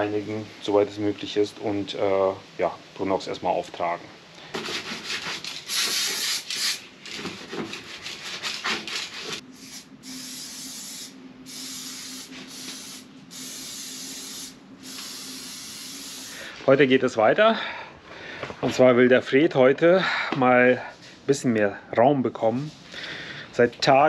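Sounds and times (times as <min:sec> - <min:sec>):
rubbing and wiping: 0:04.6 - 0:09.4
aerosol spray can hissing: 0:05.7 - 0:06.8, 0:09.6 - 0:16.4.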